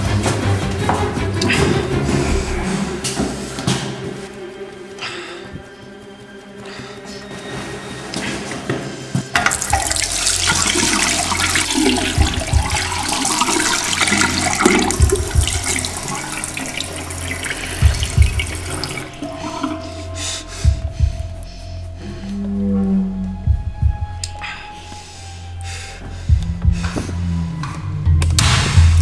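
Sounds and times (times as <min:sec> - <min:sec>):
low steady drone: 0:00.0 - 0:29.0
tap water running into sink: 0:09.4 - 0:19.9
deep thuds: 0:11.7 - 0:19.8.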